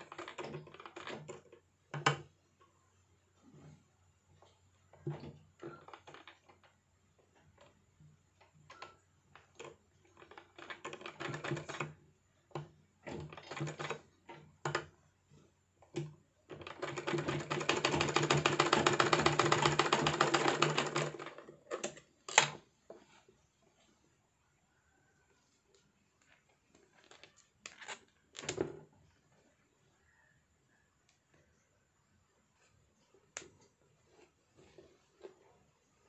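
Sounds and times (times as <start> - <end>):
sewing machine stitching: 8.7 - 14.9, 15.9 - 22.6.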